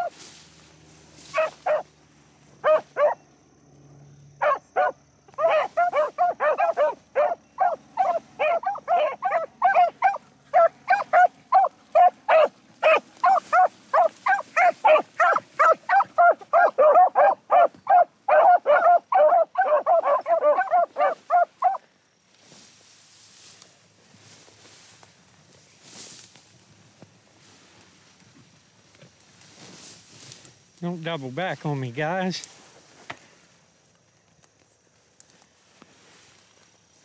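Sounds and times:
hounds baying: 0.0 - 0.2, 1.2 - 1.9, 2.6 - 3.2, 4.4 - 21.9.

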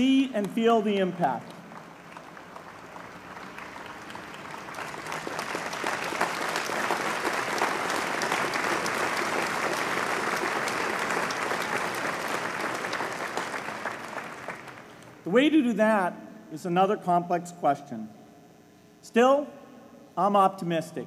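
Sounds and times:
large audience applauding: 1.7 - 15.0.

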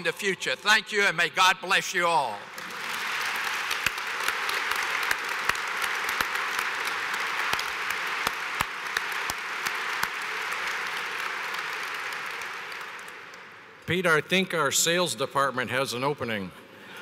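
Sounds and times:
audience applauding: 2.5 - 13.8
sharp nearby claps: 2.5 - 13.8.

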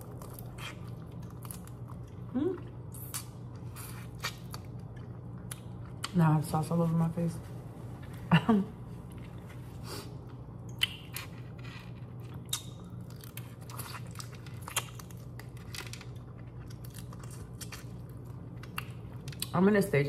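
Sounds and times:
chewing crunchy shrimp: 0.0 - 6.2, 10.2 - 19.5
steady low hum: 0.0 - 20.0.

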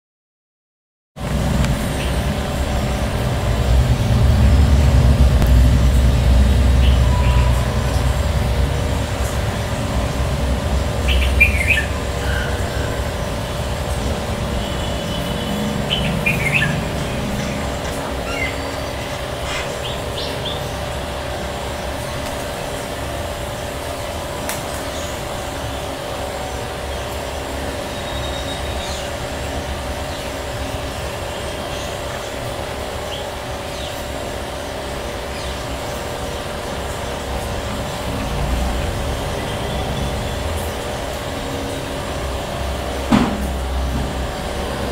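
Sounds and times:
low rumble: 1.2 - 14.7
steady hum: 1.2 - 44.9
bird chirps: 6.8 - 7.7, 11.0 - 12.9, 15.1 - 20.6.

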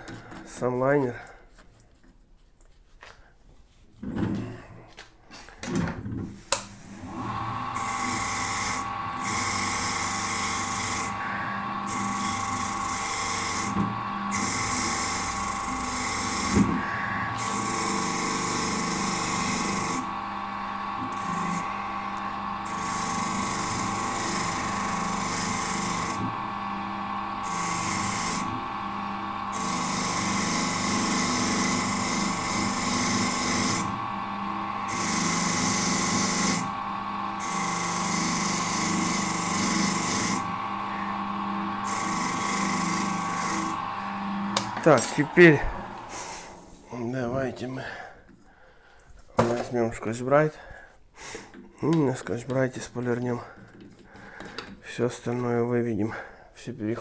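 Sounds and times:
rotary tool motor whine: 6.8 - 46.9
sanding attachment hissing on metal: 7.8 - 20.1, 37.4 - 43.8, 44.6 - 46.9.

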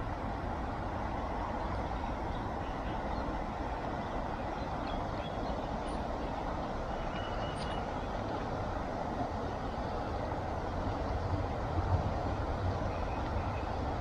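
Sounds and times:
faint high chirp: 6.9 - 7.9.

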